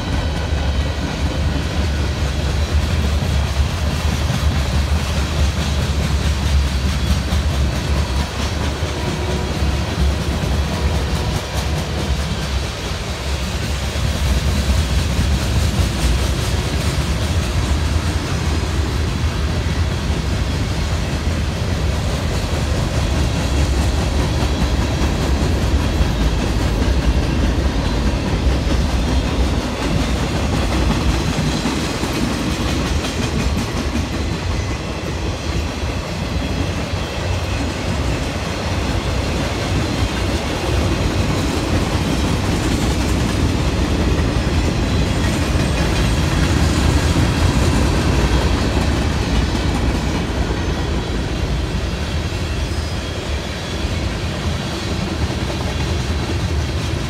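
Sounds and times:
freight train wheels rumbling: 0.0s - 57.0s.

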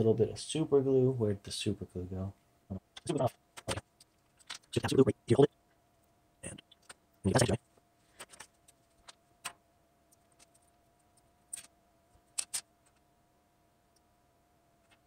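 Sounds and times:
faint steady hum: 0.0s - 15.0s
small parts clicking on wooden desk: 2.9s - 4.8s, 8.2s - 13.1s.

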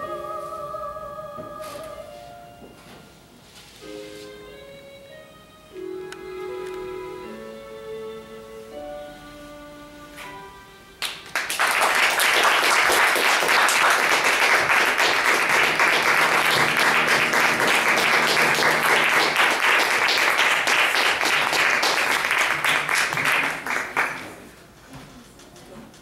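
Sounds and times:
soft string music: 0.0s - 11.1s, 15.4s - 20.4s
audience applauding: 11.0s - 24.6s.

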